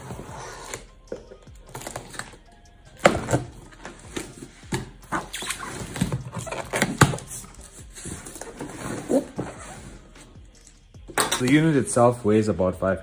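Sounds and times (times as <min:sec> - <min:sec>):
cardboard box flaps scraping: 0:08.2 - 0:10.1.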